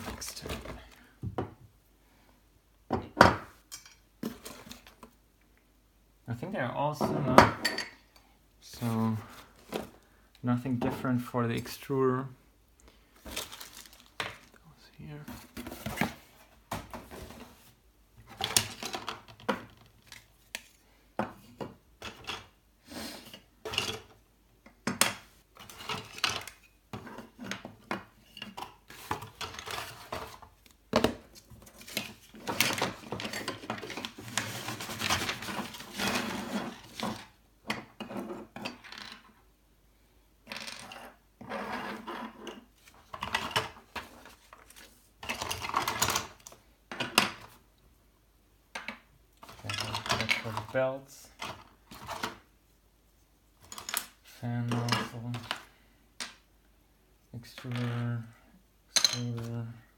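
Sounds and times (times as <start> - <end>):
packaging rustling: 13.2 - 14.6
plastic parts clattering: 13.2 - 14.6, 18.2 - 22.6, 24.8 - 39.3, 42.2 - 47.6, 48.7 - 52.5, 53.6 - 56.4.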